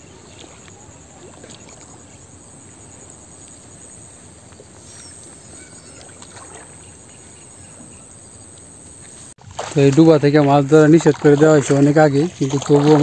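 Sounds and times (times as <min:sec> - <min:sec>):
steady outdoor hiss: 0:00.0 - 0:13.0
water sloshing and splashing: 0:00.0 - 0:13.0
faint bird chirps: 0:04.8 - 0:08.6.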